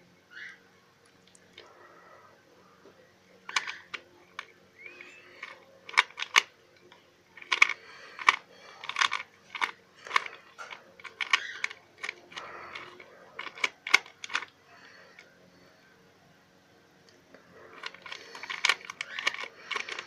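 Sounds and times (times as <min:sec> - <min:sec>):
puzzle cube clicking: 0:03.5 - 0:06.5, 0:07.4 - 0:14.6, 0:17.7 - 0:20.0.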